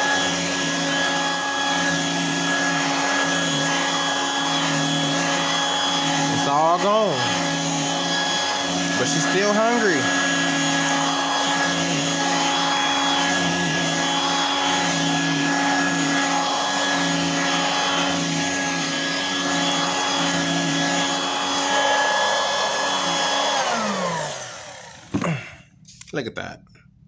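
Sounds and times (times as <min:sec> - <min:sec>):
hand vacuum running on carpet: 0:00.0 - 0:25.4.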